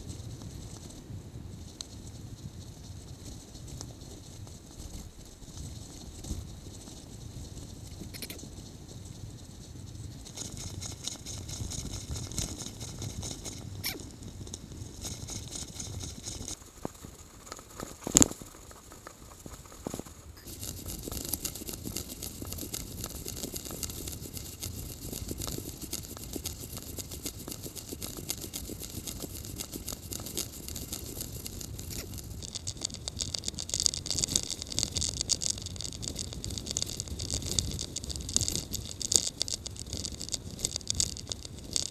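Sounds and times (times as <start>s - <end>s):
bicycle rattling over paths: 2.6s - 41.9s.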